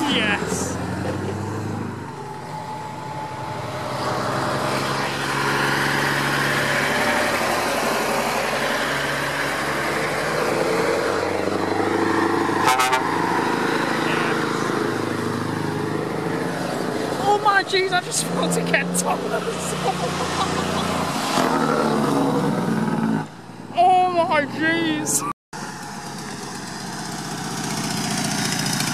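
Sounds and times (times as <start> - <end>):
diesel lorries driving past: 0.0 - 23.7, 24.4 - 28.9
traffic noise: 0.0 - 28.9
short horn toot: 12.6 - 13.1.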